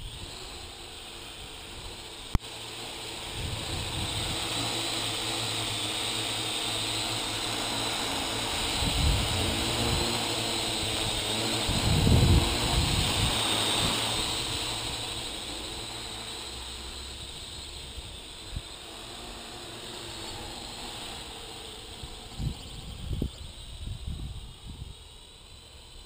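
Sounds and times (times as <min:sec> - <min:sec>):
drone rotors whining: 0:00.0 - 0:26.0
wind on microphone: 0:03.3 - 0:04.5, 0:08.5 - 0:14.7, 0:22.0 - 0:25.0.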